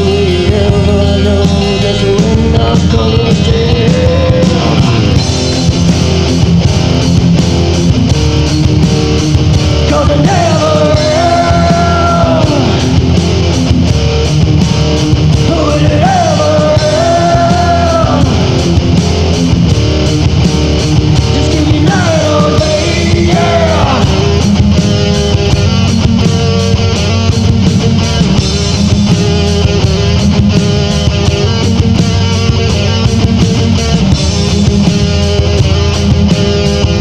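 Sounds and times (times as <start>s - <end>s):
rock band playing: 0.0s - 37.0s.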